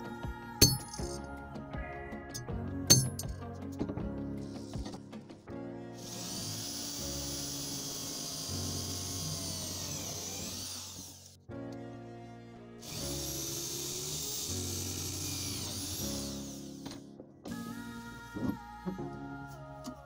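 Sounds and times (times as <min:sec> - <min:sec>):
background music: 0:00.0 - 0:20.0
electric drill whining through metal: 0:06.0 - 0:11.4, 0:12.8 - 0:17.6.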